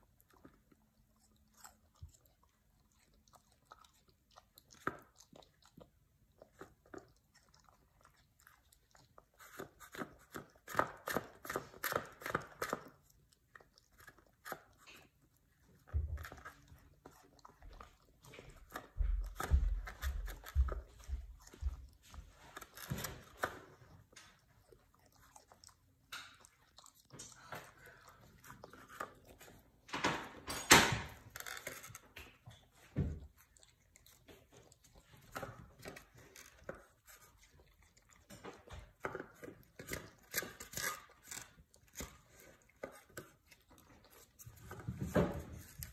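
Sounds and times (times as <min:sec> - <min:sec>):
dog chewing and crunching food: 0:00.0 - 0:45.9.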